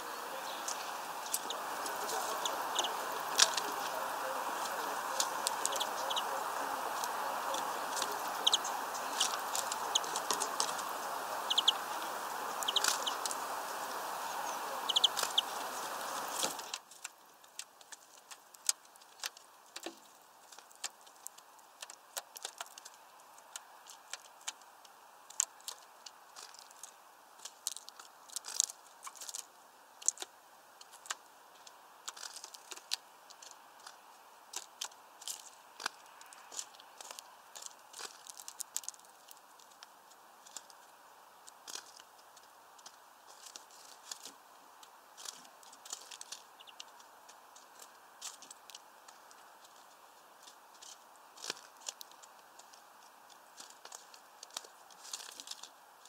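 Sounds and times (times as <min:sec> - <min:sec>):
steady hiss: 0:00.0 - 0:56.0
beaks tapping on feeder: 0:00.2 - 0:16.8, 0:46.0 - 0:47.1.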